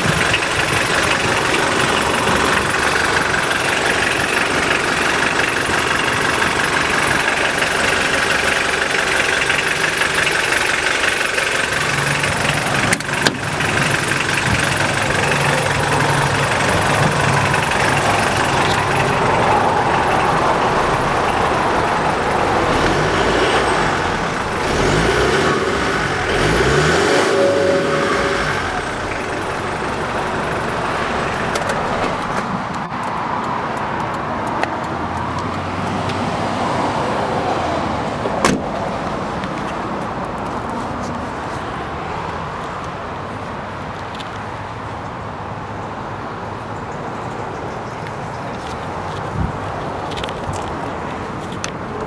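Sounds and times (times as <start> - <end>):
diesel engine idling: 0.0 - 37.0.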